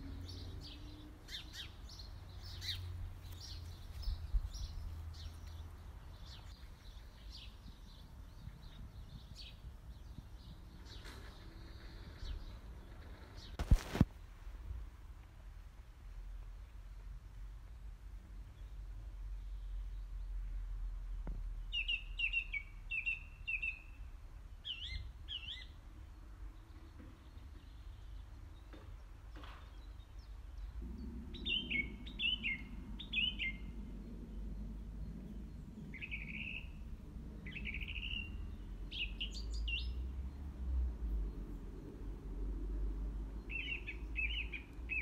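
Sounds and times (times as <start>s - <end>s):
songbird chirping: 0.0s - 14.4s, 16.2s - 45.0s
low background rumble: 30.2s - 45.0s.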